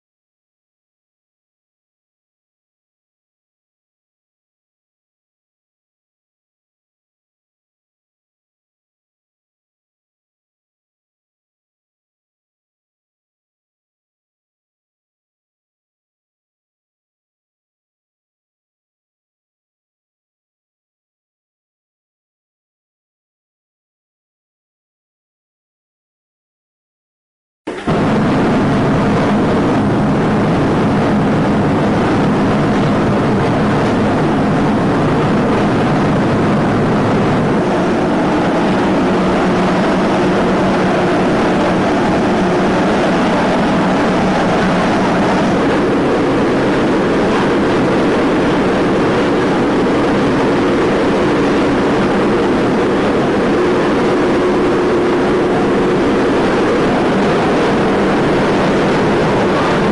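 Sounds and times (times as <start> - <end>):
propane burner flames rushing: 27.7 - 59.9.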